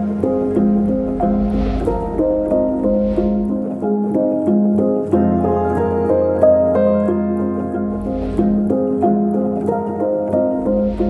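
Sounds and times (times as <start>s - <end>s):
background piano music: 0.0s - 11.0s.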